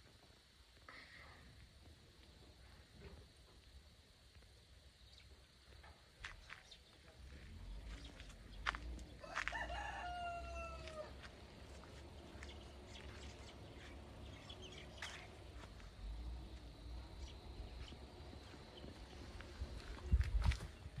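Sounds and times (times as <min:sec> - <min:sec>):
rooster crowing: 0:09.2 - 0:11.3.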